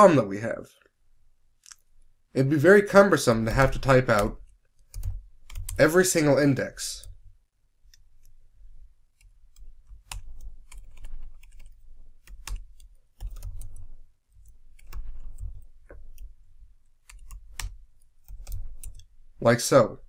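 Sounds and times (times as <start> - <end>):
computer keyboard typing: 3.5 - 6.2, 9.2 - 16.4, 17.0 - 19.1.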